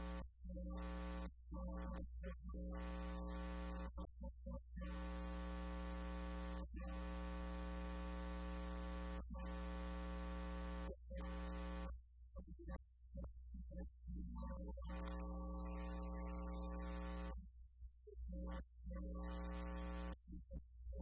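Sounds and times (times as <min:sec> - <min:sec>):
electrical mains hum: 0:05.0 - 0:11.8.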